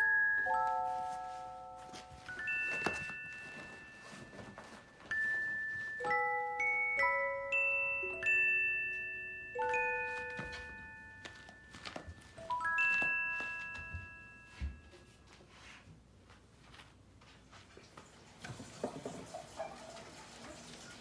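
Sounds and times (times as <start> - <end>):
bell-like chime music: 0.0 - 15.4.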